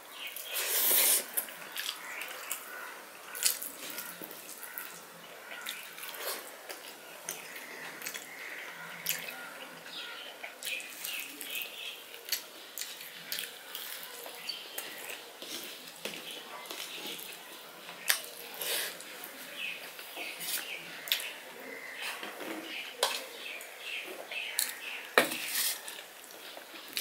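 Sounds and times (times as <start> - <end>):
chewing sounds: 0.8 - 8.4, 10.4 - 17.5.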